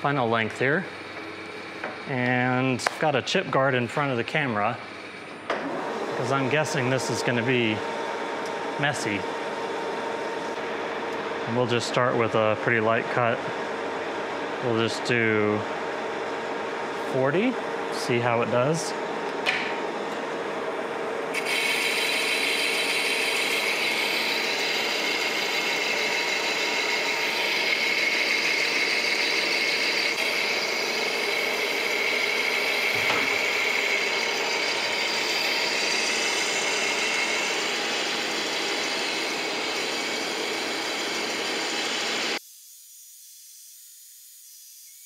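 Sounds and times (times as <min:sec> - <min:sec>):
lathe cutting hiss and whine: 0:00.0 - 0:19.0, 0:19.7 - 0:45.0
spinning chuck hum: 0:19.1 - 0:42.4.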